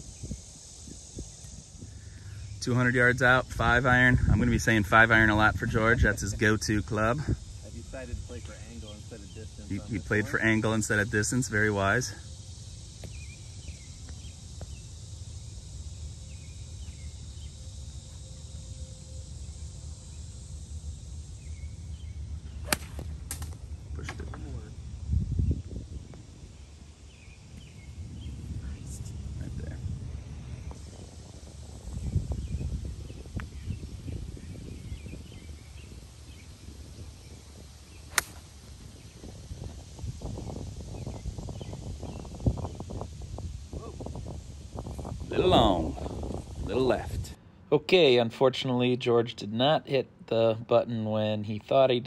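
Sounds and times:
wind rumble on microphone: 0.0 - 17.7, 21.3 - 47.4
faint bird chirps: 16.2 - 20.4
golf iron striking ball: 22.6 - 23.6, 38.1 - 38.6.

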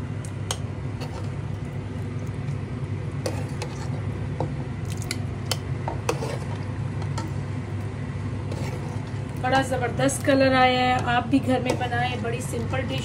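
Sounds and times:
steady low hum: 0.0 - 13.0
ladle clinking and scraping pot: 3.2 - 4.0, 5.5 - 7.4, 8.5 - 9.2.

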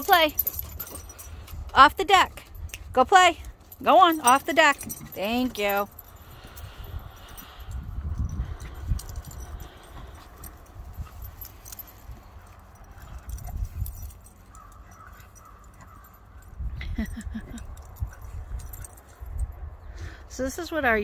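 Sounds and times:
light jingling clicks: 0.0 - 19.8
dogs play-wrestling: 0.4 - 1.7, 6.0 - 16.8, 17.4 - 19.5.

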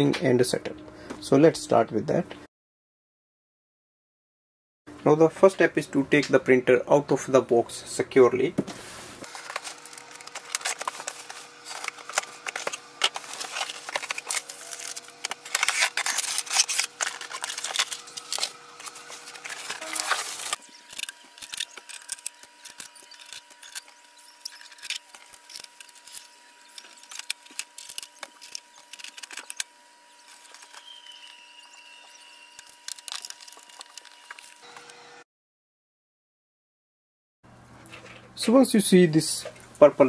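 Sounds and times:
cardboard box and packing rustling: 8.7 - 29.6, 32.6 - 34.6
scissors slitting packing tape: 9.3 - 29.7, 32.5 - 34.6.

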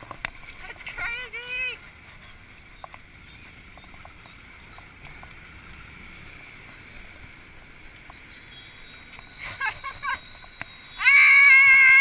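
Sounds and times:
bicycle tyres on road: 0.0 - 12.0
faint short squeaks: 8.1 - 11.4.

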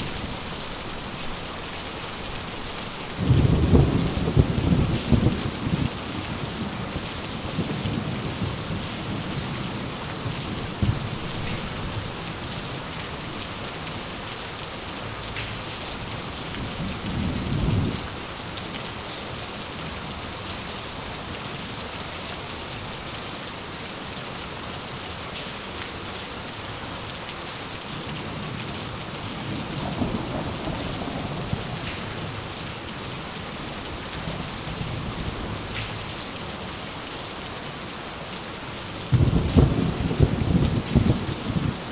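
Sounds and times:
heavy rain: 0.0 - 41.9
thunder rolling: 39.1 - 41.9.

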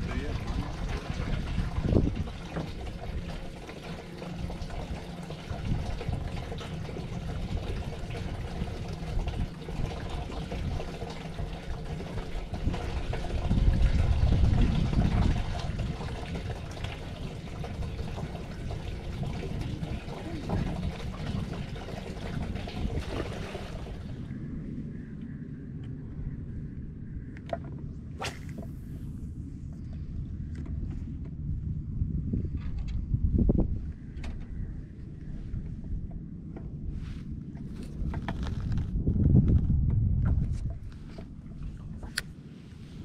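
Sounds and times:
water lapping against boat hull: 0.0 - 24.3, 27.4 - 28.9, 35.3 - 43.0
wind buffeting microphone: 0.0 - 43.0.

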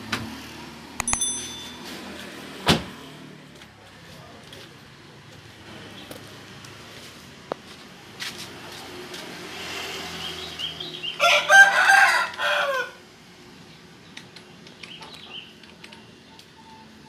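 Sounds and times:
rooster crowing: 11.2 - 13.0.

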